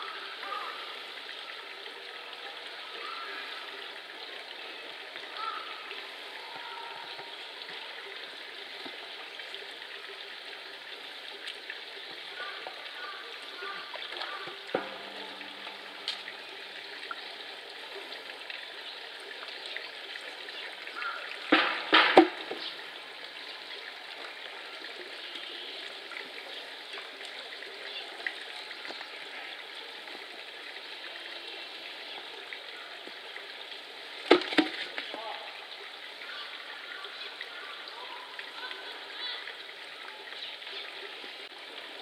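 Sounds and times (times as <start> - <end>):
running water trickle: 0.0 - 42.0
loud knocks: 21.5 - 22.4.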